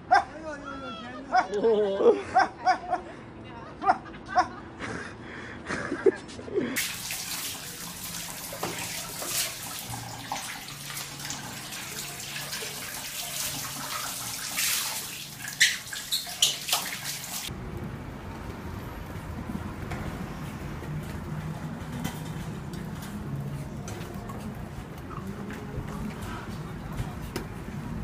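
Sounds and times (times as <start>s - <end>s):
shower water spraying: 6.8s - 17.5s.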